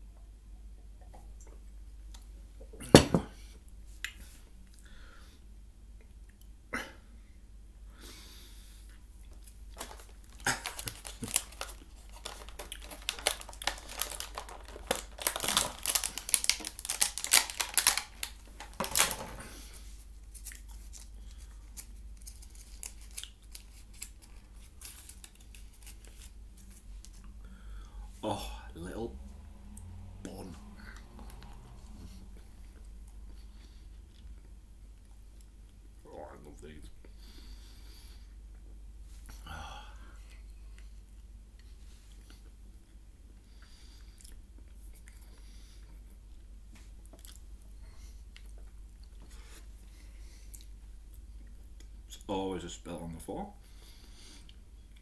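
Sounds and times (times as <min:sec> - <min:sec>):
plastic packaging crinkling and tearing: 0:09.4 - 0:19.5, 0:20.2 - 0:27.3.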